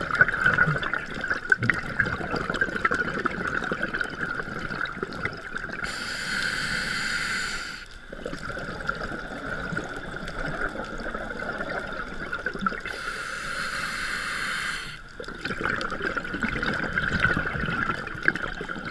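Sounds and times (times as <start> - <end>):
bubbling exhale: 1.6 - 18.9
regulator hissing inhale: 5.8 - 8.2, 12.9 - 15.1.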